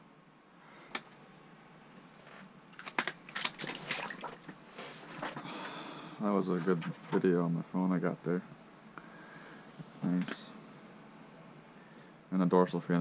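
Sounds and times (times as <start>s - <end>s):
splashing in slush: 2.8s - 5.4s.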